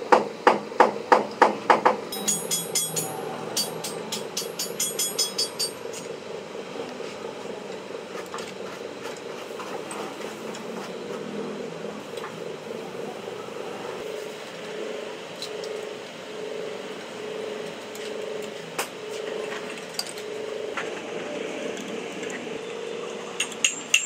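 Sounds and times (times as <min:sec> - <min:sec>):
sharp metal clicks: 0:02.1 - 0:06.0
pulsing steady hum: 0:02.1 - 0:24.0.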